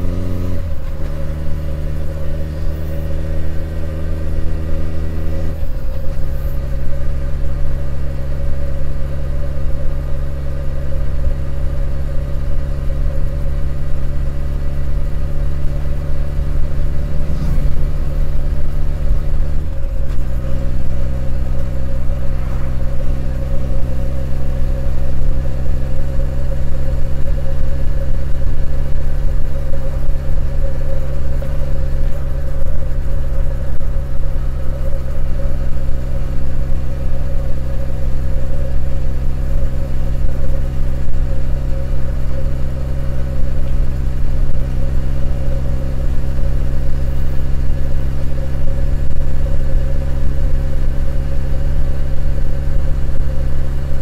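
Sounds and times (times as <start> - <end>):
motorcycle engine cruising: 0.0 - 9.9, 10.7 - 54.0.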